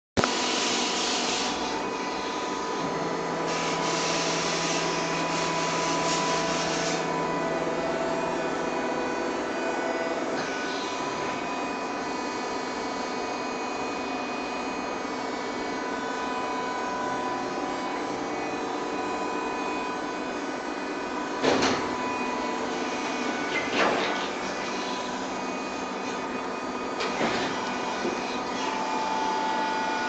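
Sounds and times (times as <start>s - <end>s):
moulding machine humming: 0.2s - 30.0s.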